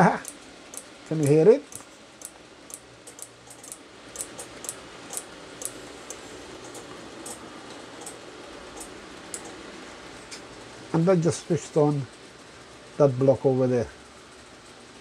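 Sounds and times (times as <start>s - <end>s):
relays clicking: 0.0s - 8.2s, 8.8s - 9.6s
model train running hum: 0.0s - 15.0s.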